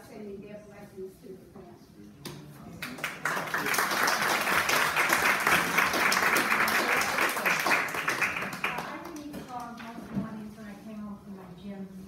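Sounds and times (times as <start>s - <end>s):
crowd applauding: 2.8s - 9.3s.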